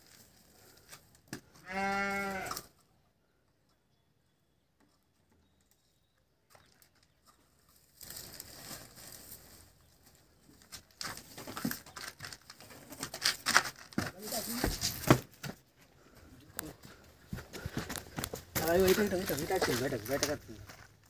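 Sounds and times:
stick rustling through weeds: 7.6s - 12.5s, 17.9s - 20.4s.

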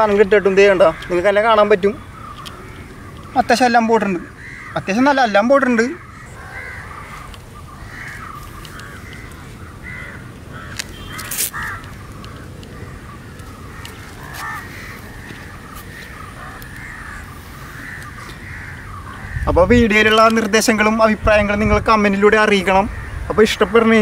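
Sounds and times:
crows cawing: 0.0s - 20.5s, 22.9s - 24.0s
sharp clicks: 2.3s - 3.4s, 8.4s - 9.4s, 10.3s - 14.1s.

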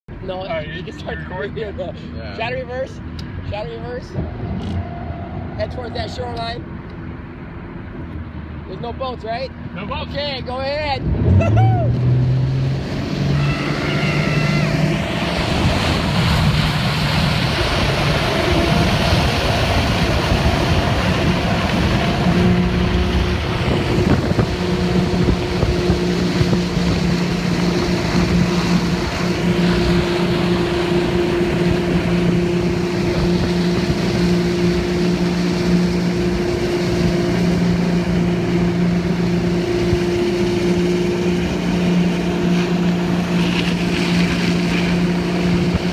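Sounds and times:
motorboat engine pulling hard: 0.2s - 7.8s, 8.8s - 45.9s
wind on microphone: 11.1s - 45.9s.

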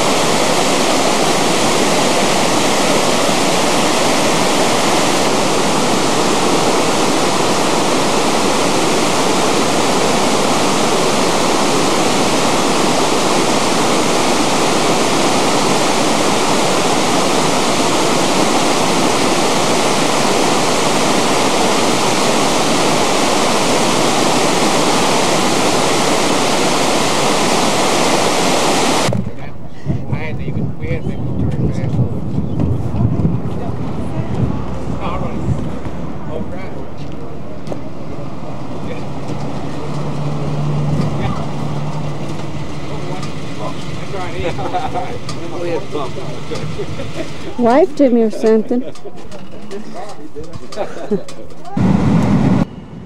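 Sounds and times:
waterfall rushing: 0.0s - 29.1s, 37.2s - 48.3s.

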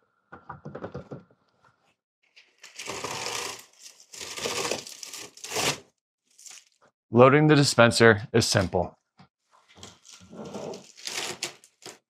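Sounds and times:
paper wrap rustling: 2.4s - 6.8s, 9.8s - 12.0s.

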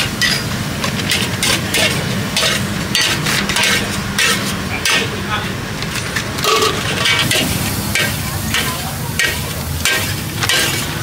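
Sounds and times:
metal spatula scraping a wok: 0.2s - 5.1s, 6.0s - 11.0s
food sizzling: 5.8s - 11.0s
low rumble: 7.2s - 9.8s.

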